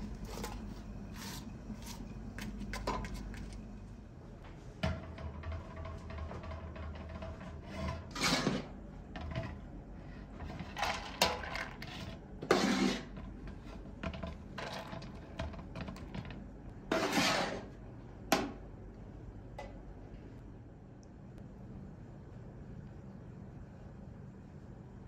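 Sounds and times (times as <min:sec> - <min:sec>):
metal ladle scraping bowl: 0:07.0 - 0:08.7, 0:10.2 - 0:13.9, 0:16.9 - 0:17.7.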